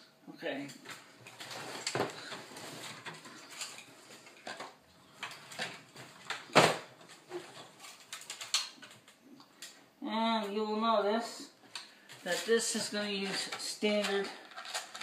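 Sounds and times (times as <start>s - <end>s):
plastic and metal parts clicking: 7.6s - 9.8s, 13.2s - 15.0s.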